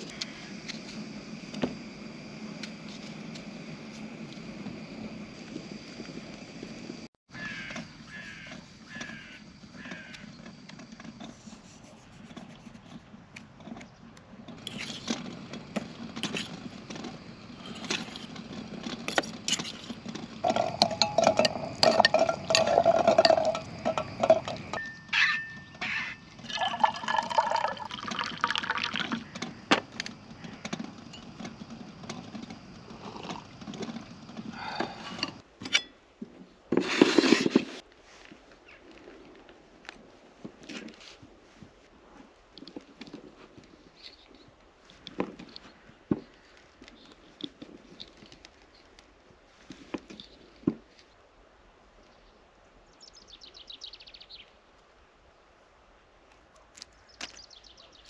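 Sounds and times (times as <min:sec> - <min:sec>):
tableware clinking and clattering: 0:20.4 - 0:25.8
liquid pouring into a cup: 0:26.4 - 0:29.3.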